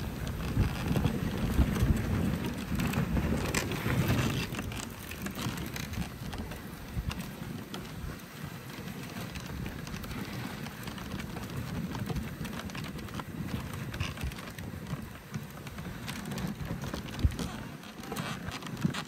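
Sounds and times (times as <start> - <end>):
sled runners hissing on snow: 6.1 - 12.4.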